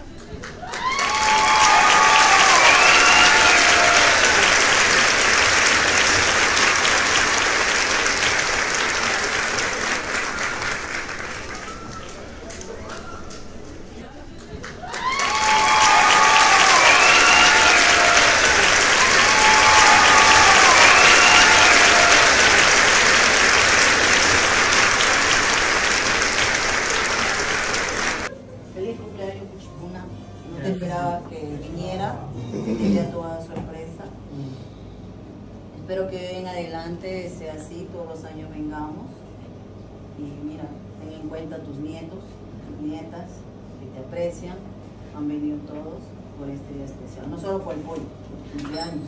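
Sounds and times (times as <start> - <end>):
group of people applauding: 0.0 - 13.6, 14.4 - 28.3.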